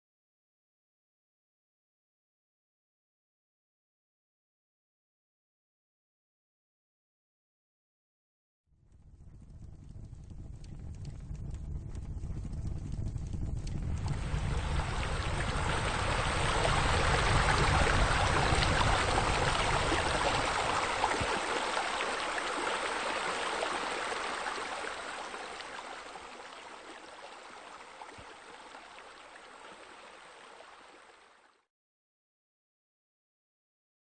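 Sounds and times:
low rumble: 8.9 - 22.8
water pouring into pool: 13.6 - 31.6.

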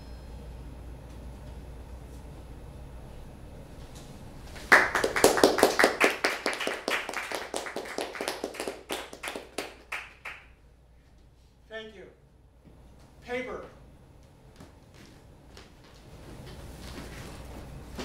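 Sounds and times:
faint low hum: 0.0 - 18.0
audience applauding: 4.6 - 10.5.

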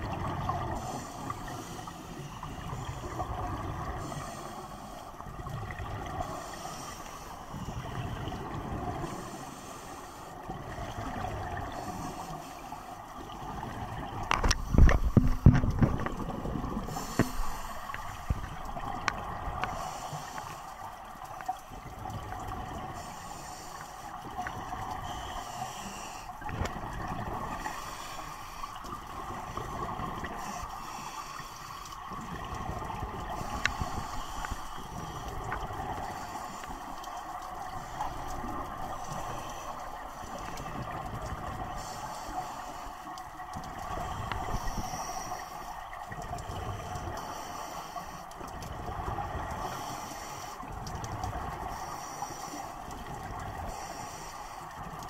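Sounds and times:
exhaled bubbles rumbling: 0.0 - 1.8, 2.4 - 4.4, 5.2 - 6.5, 10.4 - 12.0, 13.1 - 20.0, 26.3 - 30.6, 32.0 - 42.0
regulator breathing hiss: 16.9 - 18.4, 19.7 - 20.8, 23.0 - 24.2, 25.0 - 26.4, 27.5 - 28.9, 33.4 - 37.0, 44.1 - 45.7, 47.1 - 48.3, 49.6 - 50.7, 51.7 - 52.8, 53.6 - 54.9.

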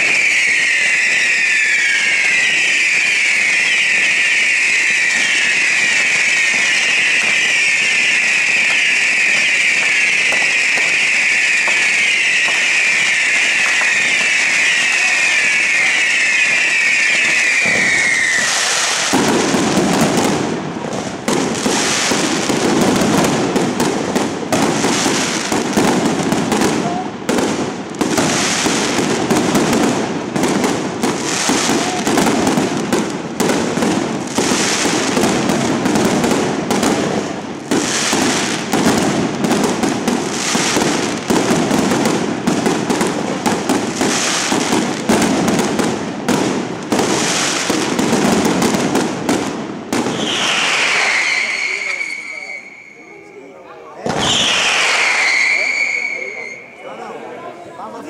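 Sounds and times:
falling firework whistles: 0.0 - 20.4, 21.3 - 57.2
firecrackers rattling: 0.0 - 52.9.

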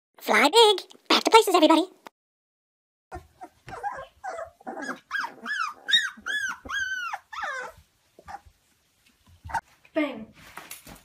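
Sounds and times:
puppies growling: 3.1 - 8.6
puppies yipping: 3.1 - 8.6, 9.4 - 9.7.

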